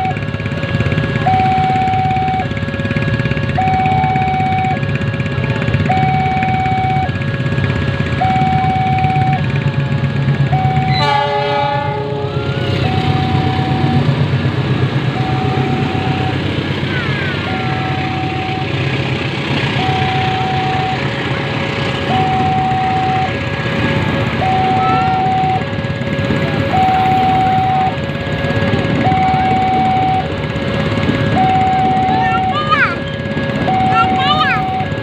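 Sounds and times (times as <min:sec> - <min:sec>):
train rumbling past: 0:00.0 - 0:35.0
two-tone crossing alarm: 0:00.0 - 0:35.0
locomotive horn: 0:01.2 - 0:07.2, 0:10.5 - 0:14.1, 0:17.0 - 0:18.9, 0:22.0 - 0:34.9.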